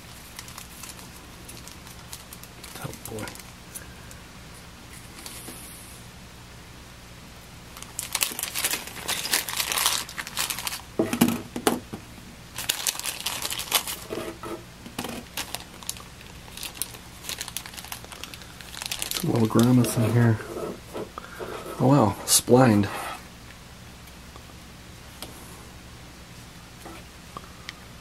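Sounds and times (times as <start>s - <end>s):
plastic bag crinkling: 0.0s - 3.8s, 7.8s - 11.0s, 12.5s - 14.2s, 15.0s - 20.4s.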